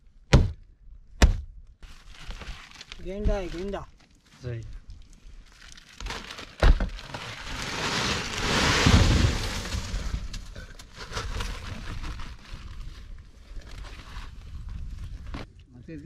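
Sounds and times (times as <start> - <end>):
ice rattling and crunching: 1.8 - 15.3
rush of falling ice: 7.0 - 12.4.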